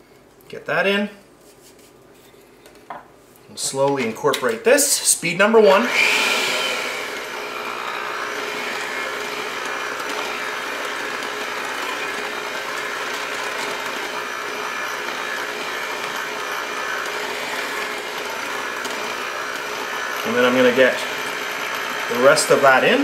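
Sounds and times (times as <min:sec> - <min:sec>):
electric hand mixer running: 0:05.6 - 0:23.0.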